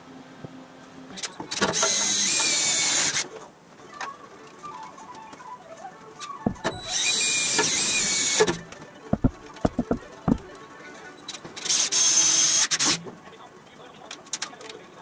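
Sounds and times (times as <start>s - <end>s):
cordless drill whining: 1.6s - 3.2s, 6.5s - 8.6s.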